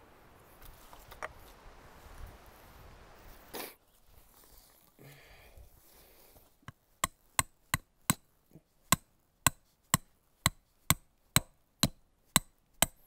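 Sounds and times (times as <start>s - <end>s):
hammer driving tent stake: 6.7s - 8.3s, 8.9s - 13.0s.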